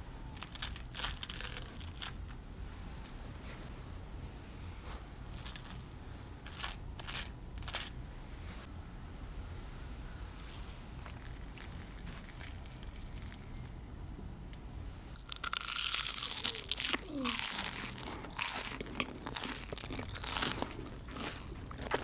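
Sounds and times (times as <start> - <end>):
fried snack crunching: 0.4 - 2.2, 15.2 - 22.0.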